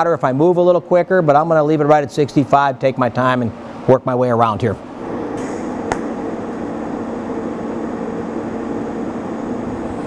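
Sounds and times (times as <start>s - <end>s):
sharp click: 5.4s - 6.1s.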